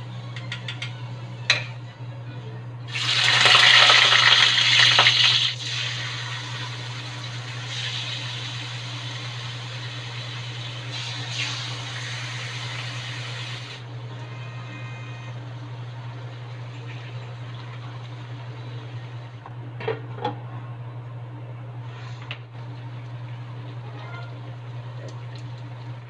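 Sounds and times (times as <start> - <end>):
food sizzling in hot oil: 2.9 - 13.8.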